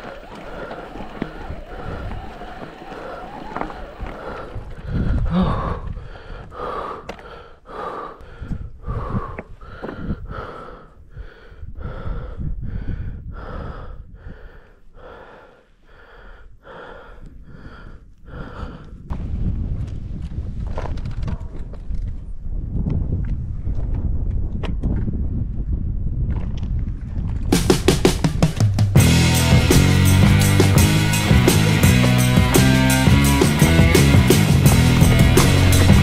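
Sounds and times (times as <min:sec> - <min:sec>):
person panting hard: 0:00.0 - 0:19.1, 0:29.0 - 0:36.0
low rumble: 0:29.0 - 0:36.0.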